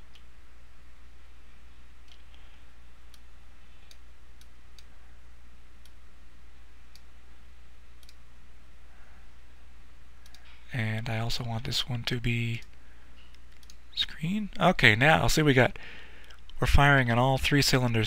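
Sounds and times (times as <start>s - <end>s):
steady low hum: 0.0s - 18.0s
computer mouse clicks: 8.0s - 8.2s, 10.2s - 10.5s, 12.6s - 13.8s.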